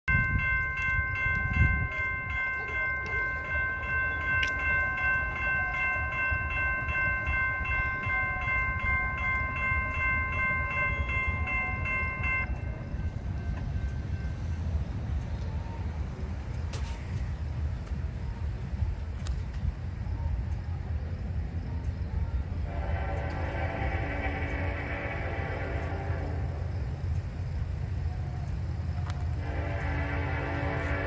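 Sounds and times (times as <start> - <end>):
electronic crossing bell ringing: 0.1 - 14.8.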